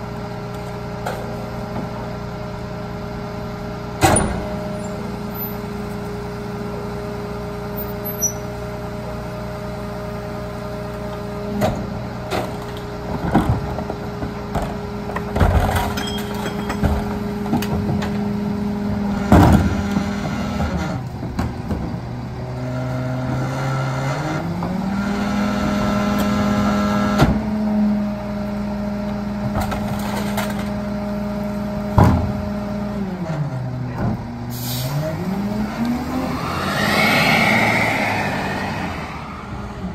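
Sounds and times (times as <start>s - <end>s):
garbage truck idling: 0.0s - 22.6s, 27.3s - 34.8s
garbage truck engine revving: 0.0s - 39.9s
bangs and thuds of trash dumping: 11.5s - 22.0s, 29.4s - 30.8s, 31.8s - 32.7s.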